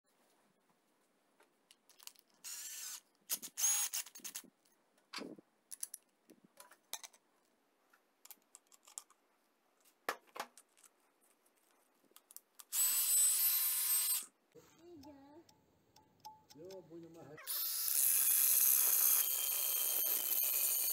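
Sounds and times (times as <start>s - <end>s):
cordless drill running: 2.5s - 4.3s, 12.7s - 14.2s, 17.5s - 20.9s
small metallic clicks and taps: 7.9s - 9.2s, 15.0s - 17.3s
drill spinning disc with whine: 17.5s - 20.9s.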